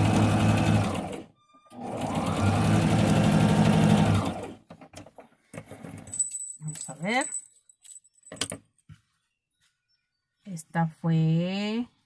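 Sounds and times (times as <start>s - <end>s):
electric sewing machine stitching: 0.0s - 4.7s.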